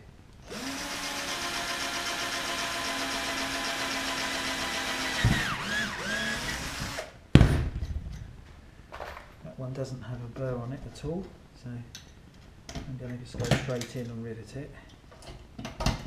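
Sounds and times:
cordless drill drilling metal: 0.4s - 7.2s.

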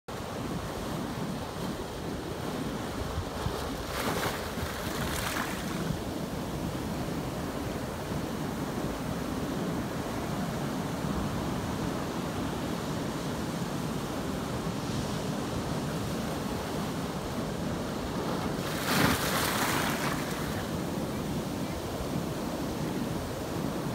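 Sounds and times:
surf breaking on rocky shore: 3.2s - 6.1s, 18.1s - 21.8s
splashing rush of water: 3.8s - 5.8s, 18.6s - 20.7s.

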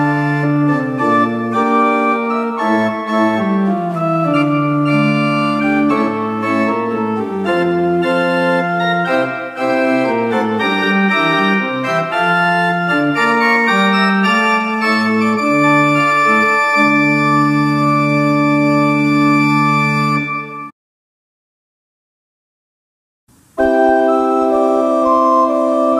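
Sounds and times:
pipe organ playing chords: 0.0s - 20.7s, 23.5s - 25.9s.

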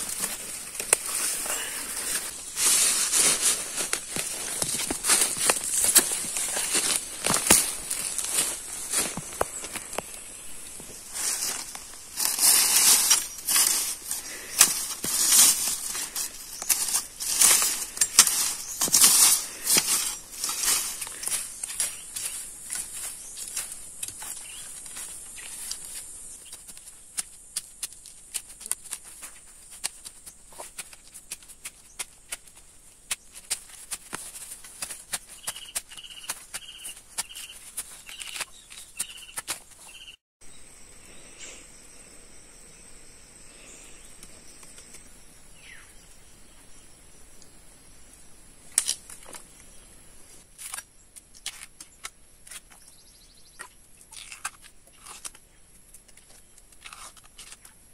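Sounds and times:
dry leaves crackling: 0.0s - 40.2s
bird chirping: 35.2s - 47.6s
high insect drone: 40.4s - 48.4s.

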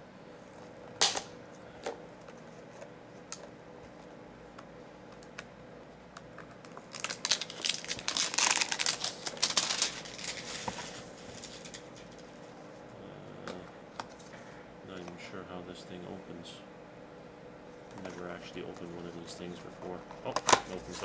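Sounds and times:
packaging crinkling and tearing: 6.6s - 12.4s.

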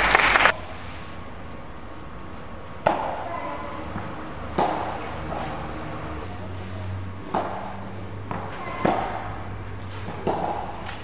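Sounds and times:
tennis ball bouncing: 2.8s - 5.6s, 7.2s - 11.0s
tennis racket hitting ball: 2.8s - 5.7s, 7.2s - 11.0s.

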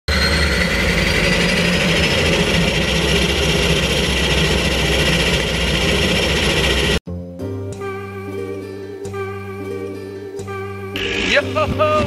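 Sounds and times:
turboprop engine droning and whining: 0.1s - 7.0s.

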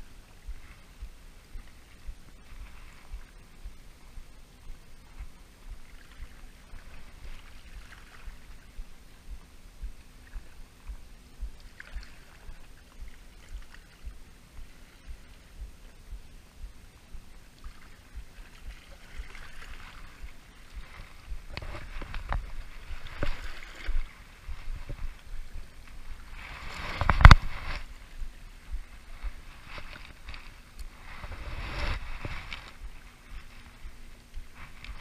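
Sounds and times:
rocks crunching and knocking: 19.2s - 25.2s, 26.5s - 27.9s.

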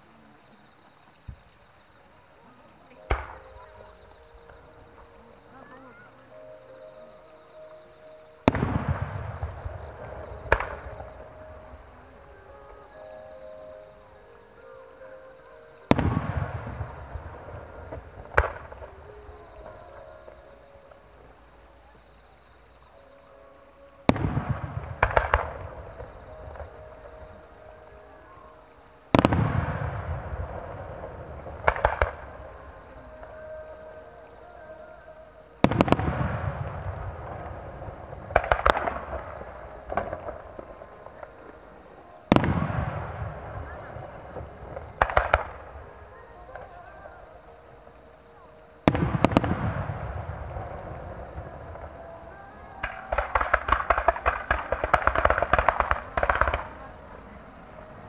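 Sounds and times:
distant firework booms with echo: 3.1s - 5.2s, 8.4s - 12.8s, 15.9s - 20.1s, 24.1s - 28.0s, 29.1s - 33.6s, 35.6s - 46.8s, 48.8s - 58.0s.

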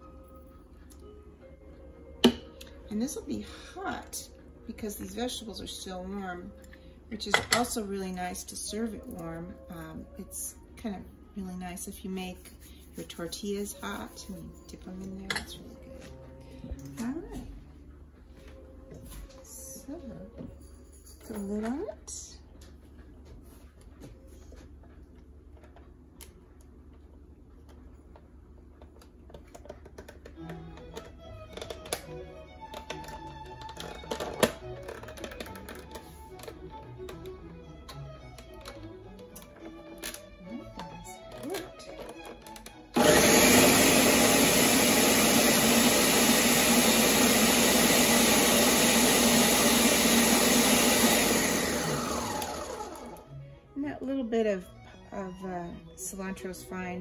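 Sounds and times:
blender motor running: 43.0s - 53.4s.

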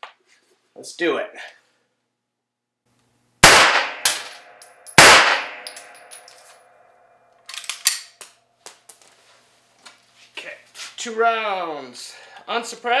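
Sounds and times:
pistol shots: 3.4s - 6.2s
light metallic clinks: 4.2s - 6.7s.

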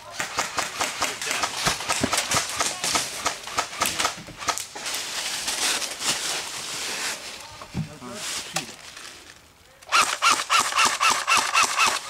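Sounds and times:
footsteps through dry leaves: 4.8s - 7.4s.

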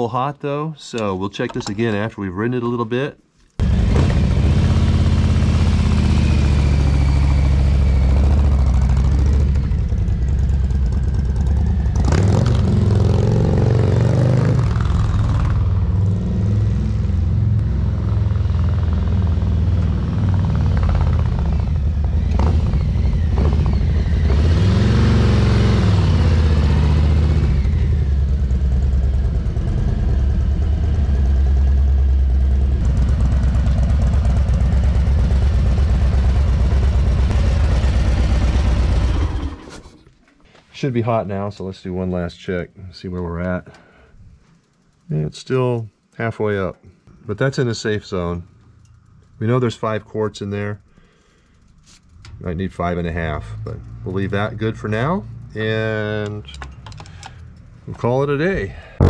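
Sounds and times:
motorcycle engine revving: 3.6s - 40.0s.

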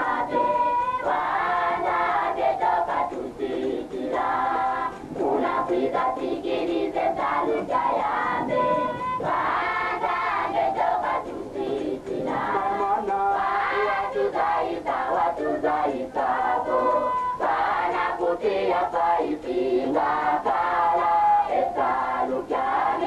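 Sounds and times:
choir of high voices singing hymn: 0.0s - 23.0s.

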